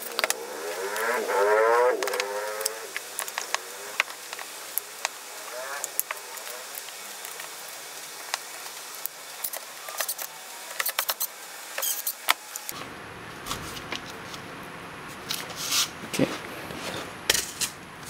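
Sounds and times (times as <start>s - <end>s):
plastic parts clicking and rattling: 0.0s - 1.0s.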